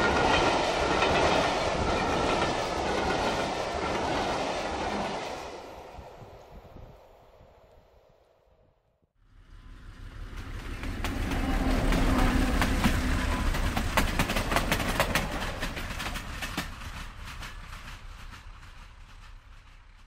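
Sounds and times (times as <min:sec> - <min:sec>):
steam train rumble: 0:00.0 - 0:07.7, 0:09.3 - 0:20.0
train wheels clattering over rails: 0:09.8 - 0:20.0.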